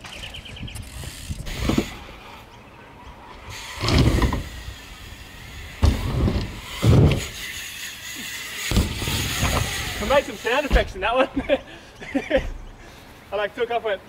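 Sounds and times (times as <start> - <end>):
bike tyres rolling on ramp: 0.0 - 11.2
bike landing thuds: 3.8 - 4.6, 5.7 - 7.4, 8.6 - 11.1.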